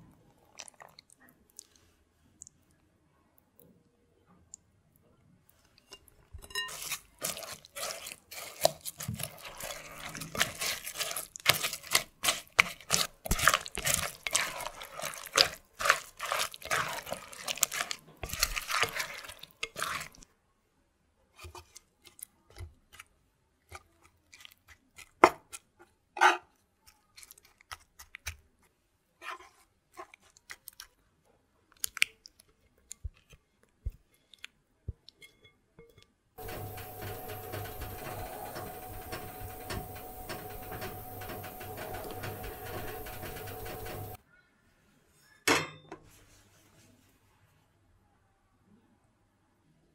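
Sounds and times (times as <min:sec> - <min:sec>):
batter squelching in a bowl: 0:00.3 - 0:02.6, 0:05.6 - 0:20.2, 0:21.3 - 0:35.5, 0:36.4 - 0:44.2.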